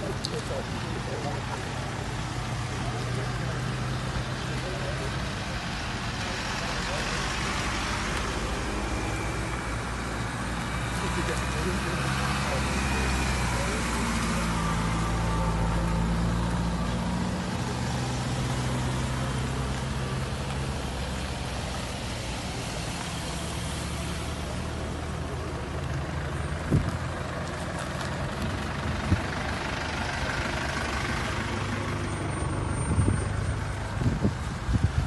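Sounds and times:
traffic hum: 0.0 - 35.0
van engine: 0.0 - 35.0.

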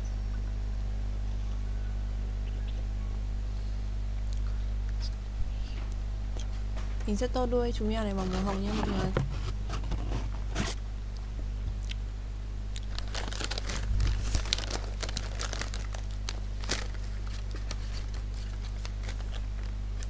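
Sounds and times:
low electrical hum: 0.0 - 20.0
plastic bag crinkling: 12.8 - 20.0.

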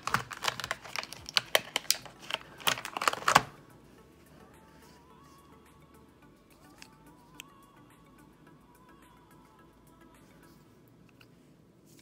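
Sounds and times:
bottles and packaging clicking: 0.0 - 3.5
faint background music: 0.0 - 12.0.

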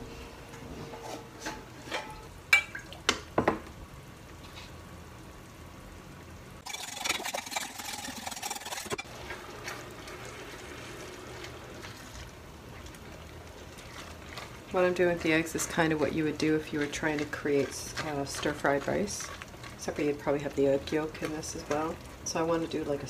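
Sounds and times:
faint sizzle from pan: 0.0 - 6.7, 9.0 - 23.0
whisk beating in glass bowl: 6.6 - 9.0.

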